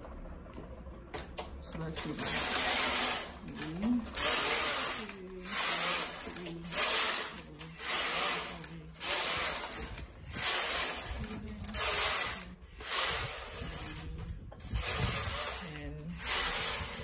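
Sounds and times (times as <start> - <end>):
knitting machine carriage swishing: 2.0 - 17.0.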